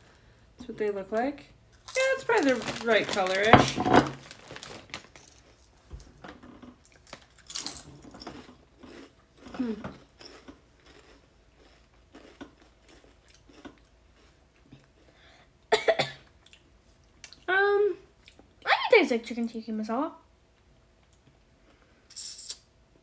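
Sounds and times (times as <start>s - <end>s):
chips being crunched and chewed: 1.7s - 5.8s, 6.8s - 15.0s
loud cough: 15.7s - 16.2s
soft mouth noises: 22.1s - 22.7s.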